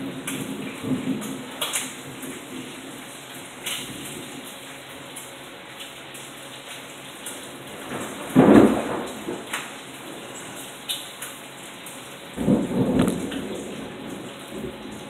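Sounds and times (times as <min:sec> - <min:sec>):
heavy rain pouring: 0:00.0 - 0:15.0
water dripping: 0:00.0 - 0:15.0
thunder rumble: 0:07.8 - 0:09.5, 0:12.4 - 0:15.0.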